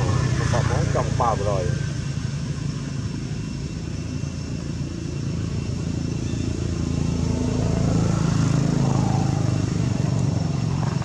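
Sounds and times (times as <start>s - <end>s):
motorbike engine running: 0.0s - 1.4s, 5.8s - 11.0s.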